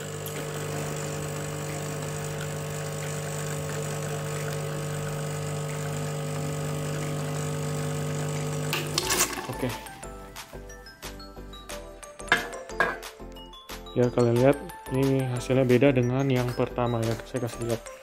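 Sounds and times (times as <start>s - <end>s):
espresso machine pump humming: 0.0s - 10.0s.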